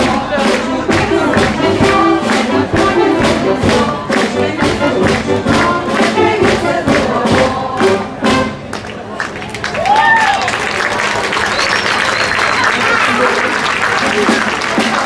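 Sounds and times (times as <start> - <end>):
chorus singing: 0.0 - 8.7
brass band playing: 0.0 - 8.8.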